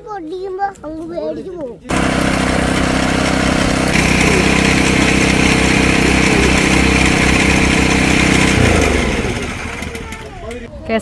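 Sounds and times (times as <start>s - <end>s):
juice crusher motor running: 1.9s - 10.7s.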